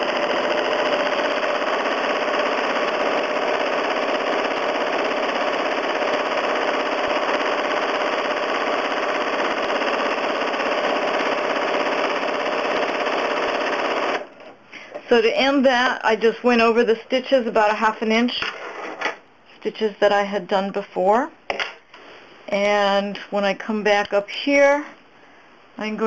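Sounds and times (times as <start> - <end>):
sewing machine running fast: 0.0 - 14.3.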